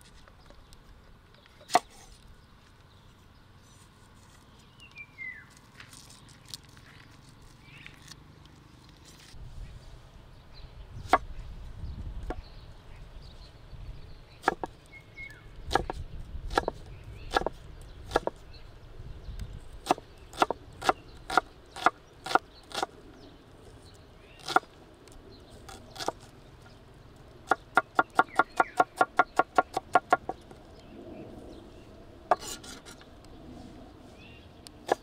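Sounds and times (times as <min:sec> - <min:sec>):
knife chopping on wooden board: 0:14.4 - 0:14.7, 0:15.7 - 0:18.4.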